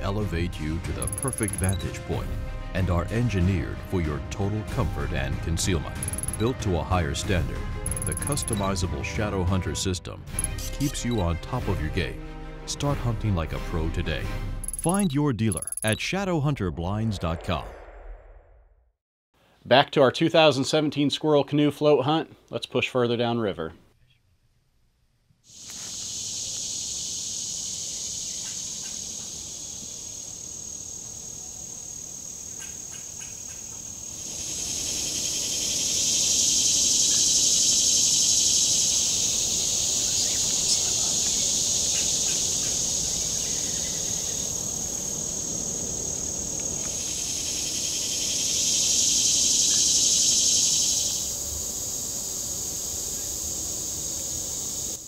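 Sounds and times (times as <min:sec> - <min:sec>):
insects buzzing: 0:05.9 - 0:06.5, 0:07.9 - 0:08.6, 0:25.5 - 0:55.0.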